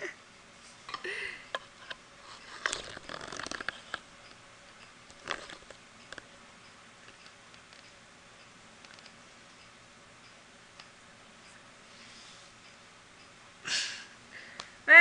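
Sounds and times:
faint clicks and rustles: 0:00.6 - 0:06.3.

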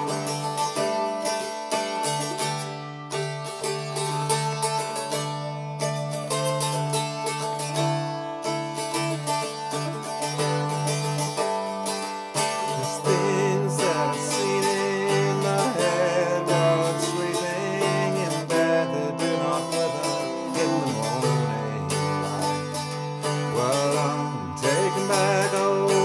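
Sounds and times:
man singing: 0:00.0 - 0:01.0, 0:12.4 - 0:26.0
bouzouki strumming: 0:00.0 - 0:26.0.

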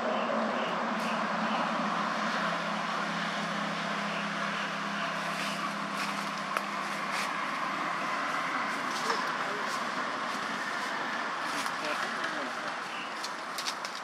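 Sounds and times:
distant engine hum: 0:00.0 - 0:14.0.

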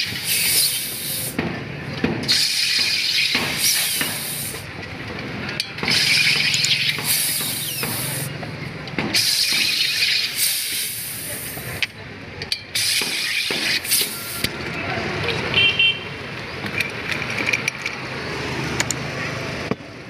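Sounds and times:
carbon dioxide hissing: 0:00.1 - 0:01.4, 0:02.3 - 0:04.6, 0:07.0 - 0:08.3, 0:09.2 - 0:11.8.

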